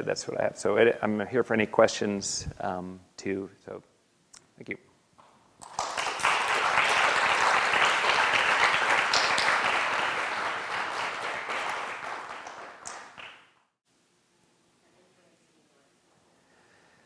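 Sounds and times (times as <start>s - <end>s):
audience applauding: 5.6s - 13.5s.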